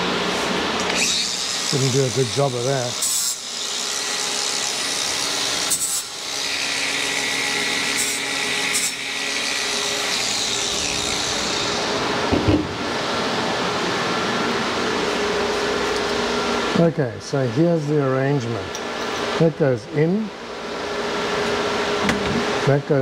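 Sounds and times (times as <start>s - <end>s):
angle grinder grinding metal: 0.8s - 12.0s.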